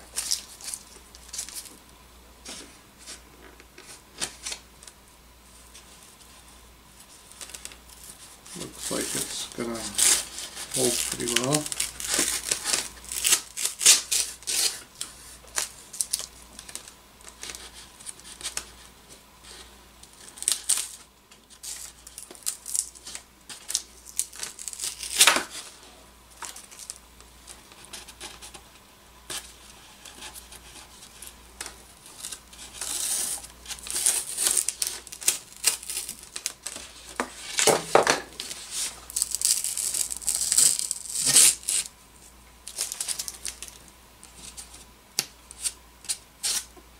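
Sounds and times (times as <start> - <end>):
tape crinkling: 0.0 - 1.8, 7.1 - 18.8, 19.5 - 28.7, 29.3 - 41.9, 42.6 - 46.7
tape ripping: 8.6 - 18.6, 20.3 - 21.0, 21.6 - 25.7, 31.6 - 41.9.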